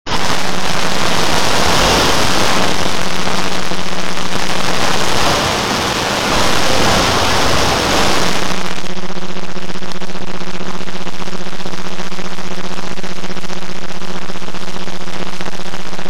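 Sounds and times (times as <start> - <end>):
loud rushing roar: 0.0 - 8.9.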